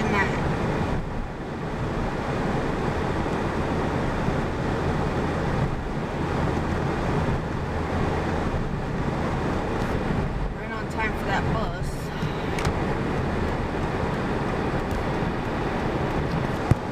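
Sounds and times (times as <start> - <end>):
truck engine hum: 0.0 - 16.9
tyre and road noise: 0.0 - 16.9.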